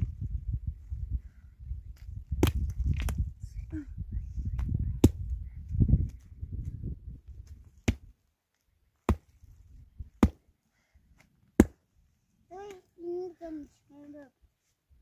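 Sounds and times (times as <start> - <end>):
pick striking gravelly ground: 1.9 - 3.3, 7.2 - 8.2, 8.9 - 10.5, 11.2 - 11.9.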